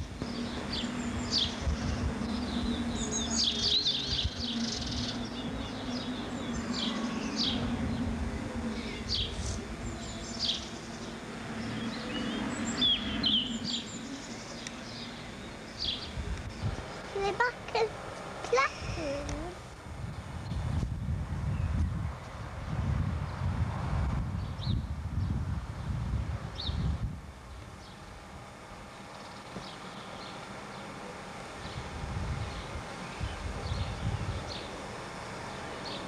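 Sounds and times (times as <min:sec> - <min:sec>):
songbirds chirping: 0:00.0 - 0:22.6, 0:24.3 - 0:36.0
steady low hum: 0:00.0 - 0:36.0.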